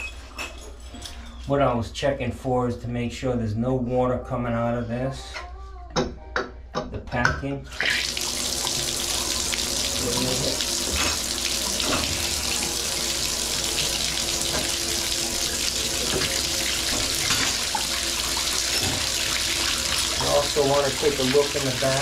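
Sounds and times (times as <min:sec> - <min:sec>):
water running into bathtub: 0:07.7 - 0:22.0.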